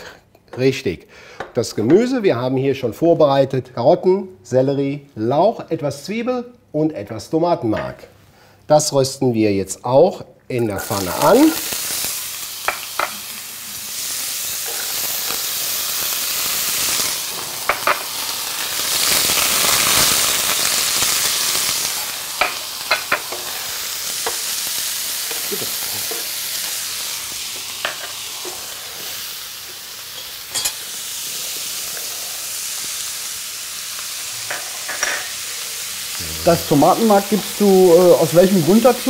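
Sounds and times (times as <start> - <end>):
vegetables sizzling in a frying pan: 10.6 - 39.0.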